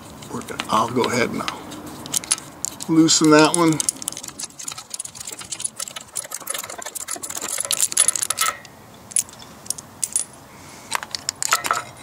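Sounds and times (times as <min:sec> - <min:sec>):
metallic clicks: 0:00.6 - 0:10.3, 0:10.9 - 0:12.0
ratchet wrench clicking: 0:01.4 - 0:10.2.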